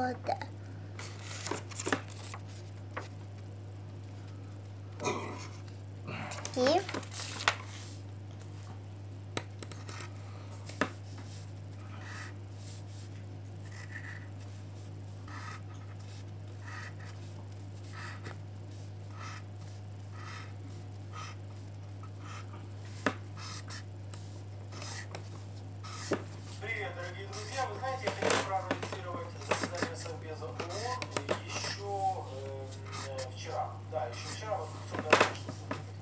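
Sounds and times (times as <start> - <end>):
steady low hum: 0.0 - 36.0
pencil tapping on table: 9.4 - 10.0
pencil scratching on paper: 11.2 - 14.6, 15.2 - 28.7, 29.3 - 33.5.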